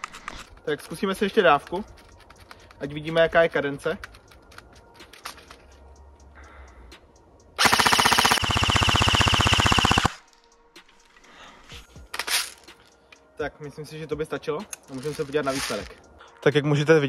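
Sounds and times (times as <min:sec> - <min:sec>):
airsoft gun full-auto burst: 0:07.6 - 0:10.2.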